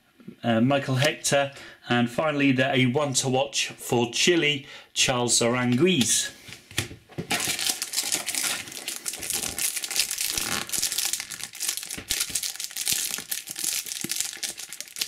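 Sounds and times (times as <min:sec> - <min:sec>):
foil pack crinkling: 0:07.3 - 0:15.0.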